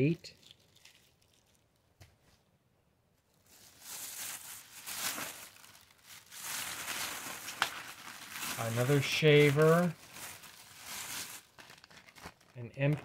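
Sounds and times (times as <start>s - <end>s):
plastic bag crinkling: 0.2s - 1.9s, 3.3s - 13.0s
hands rummaging in plastic box: 3.5s - 13.0s.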